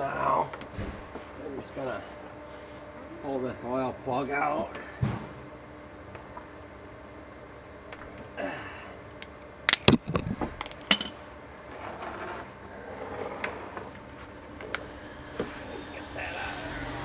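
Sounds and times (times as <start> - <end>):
metal tools clinking on concrete: 10.8 - 11.2.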